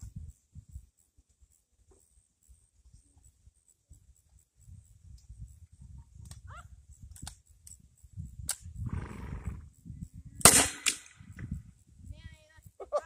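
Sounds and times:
grenade launcher firing: 0:10.4 - 0:11.1
sharp crack: 0:10.4 - 0:11.2.

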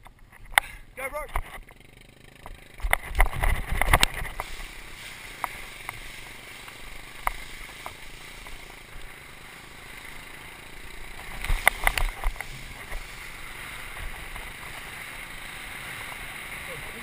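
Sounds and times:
sharp ticks: 0:01.3 - 0:15.4
water spray under bodyboard: 0:03.4 - 0:17.0.

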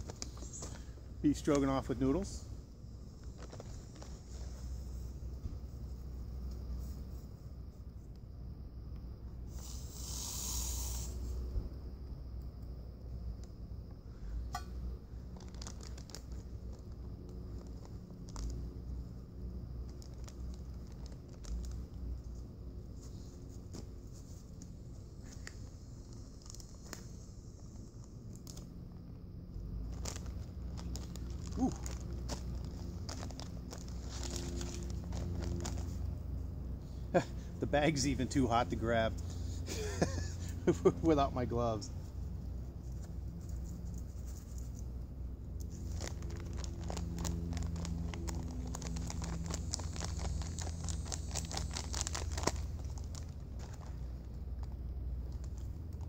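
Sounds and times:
foil pouch crinkling: 0:03.1 - 0:05.2, 0:15.2 - 0:28.7, 0:29.8 - 0:36.2, 0:45.6 - 0:56.0.

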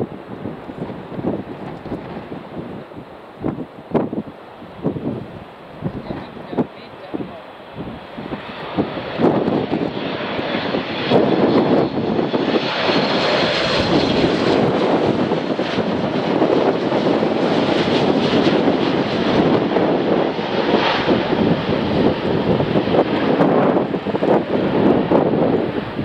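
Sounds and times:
jet airliner rumble: 0:00.0 - 0:26.0.

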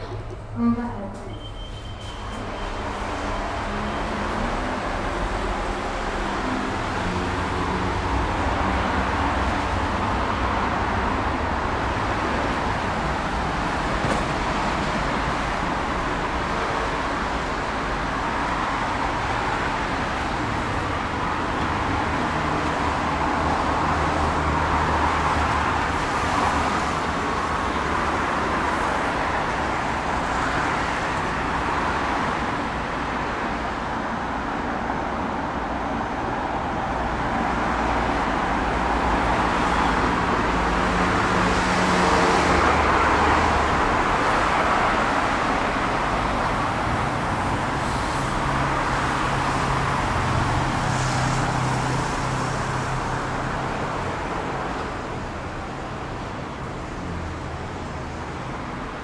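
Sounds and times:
road traffic hum: 0:00.0 - 0:59.0.

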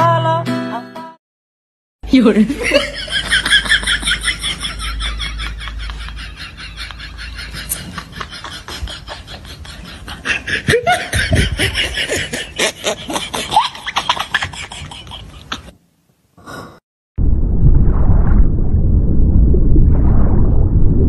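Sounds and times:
human laughter: 0:02.6 - 0:15.8.

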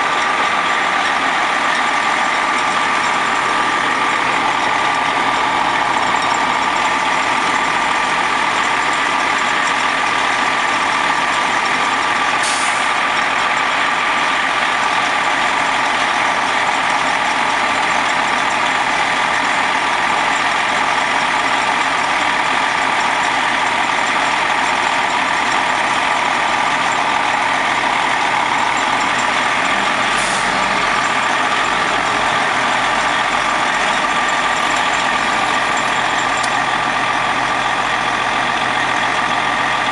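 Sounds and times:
bus diesel engine idling: 0:00.0 - 0:39.9
constant engine whine: 0:00.0 - 0:39.9
air brake hisses: 0:12.4 - 0:13.0, 0:30.1 - 0:30.8.

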